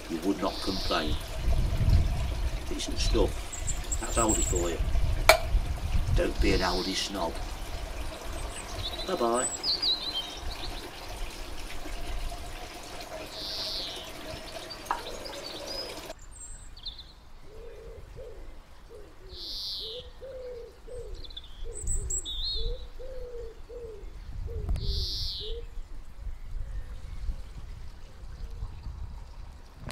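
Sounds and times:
garden birds chirping: 0.0s - 29.9s
pigeon cooing: 17.5s - 25.7s.

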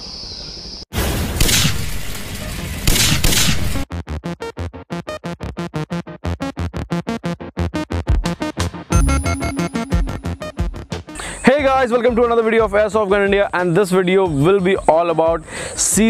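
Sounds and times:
electronic music with chopped pulse: 3.9s - 11.2s.

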